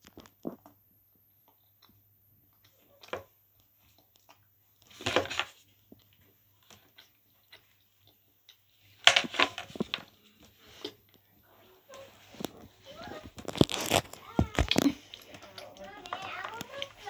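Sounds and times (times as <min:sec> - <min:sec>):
chocolate crunching while chewing: 0:02.6 - 0:10.2, 0:12.4 - 0:17.0.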